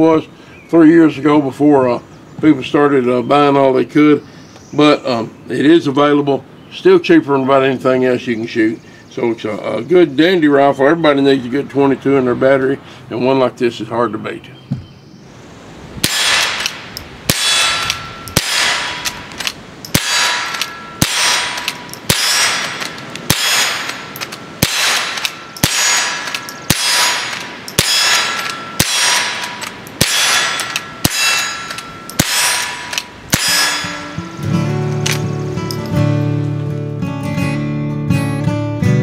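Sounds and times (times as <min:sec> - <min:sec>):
rifle shots with metallic ring: 0:16.0 - 0:34.4
acoustic guitar music: 0:33.2 - 0:39.0.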